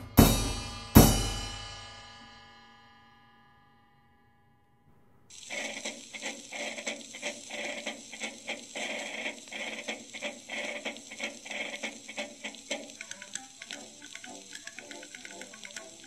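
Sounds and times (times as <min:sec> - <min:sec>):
record surface hiss: 0:04.7 - 0:16.0.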